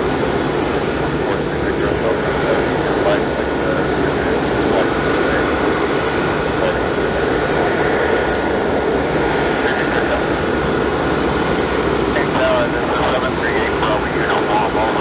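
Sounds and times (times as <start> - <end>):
jet engines rushing and whining: 0.0 - 15.0.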